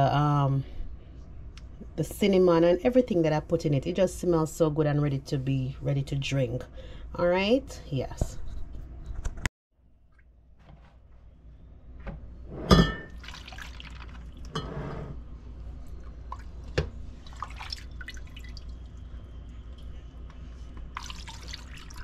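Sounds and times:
liquid pouring and dripping: 13.1 - 14.5, 16.0 - 22.0.

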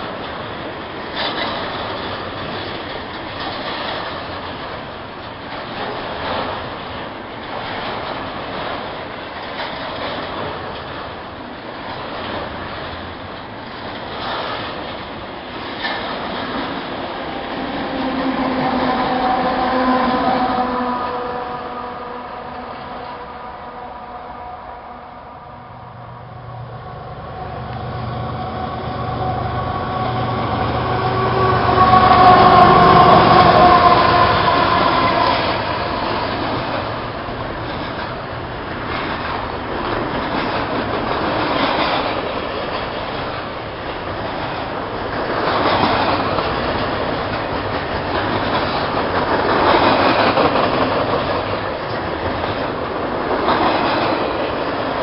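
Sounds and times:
wheels clattering over rail joints: 0.0 - 19.9
diesel locomotive drone: 0.0 - 55.0.

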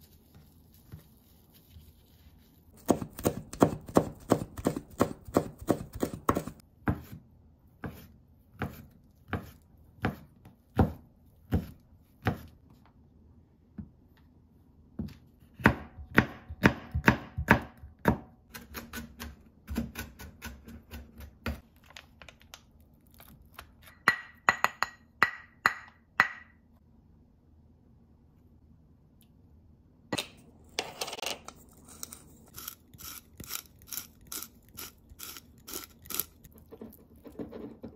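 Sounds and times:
knife chopping on wooden board: 2.8 - 7.2, 7.8 - 12.5, 15.0 - 21.6.

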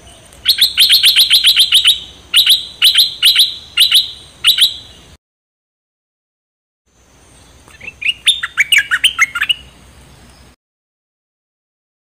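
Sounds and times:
bird calling sharp notes: 0.0 - 5.1, 7.7 - 9.8.

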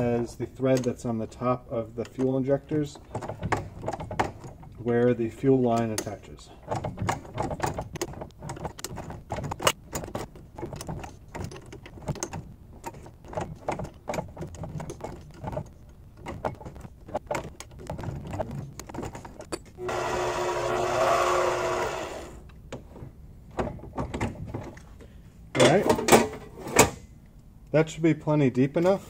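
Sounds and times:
tap and chuck clicking and scraping: 5.7 - 19.8
lathe motor whine: 19.8 - 22.4.

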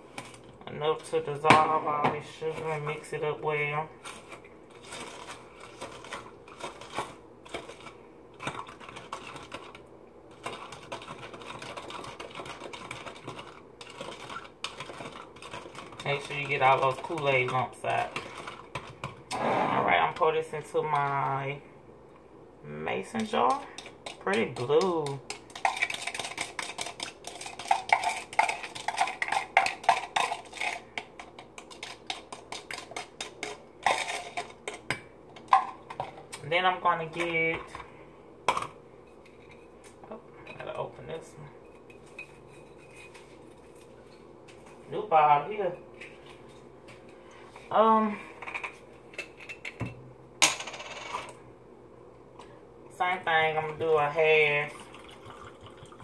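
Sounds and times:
spoon stirring in a plastic cup: 4.0 - 19.3, 23.0 - 37.9, 41.6 - 44.9.

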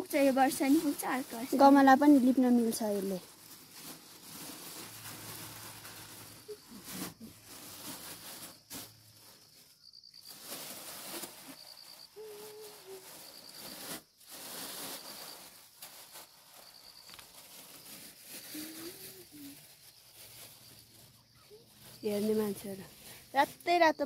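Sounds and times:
soft rustling: 0.0 - 23.9
insect chirping in bursts: 8.4 - 13.8, 16.5 - 17.3.

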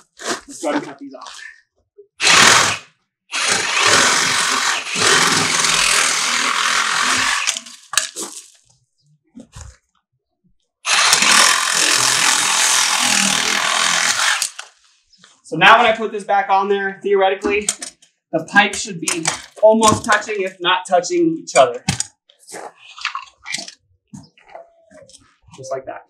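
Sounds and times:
power saw cutting plastic pipe: 2.2 - 8.2, 10.8 - 14.8, 19.1 - 20.4.

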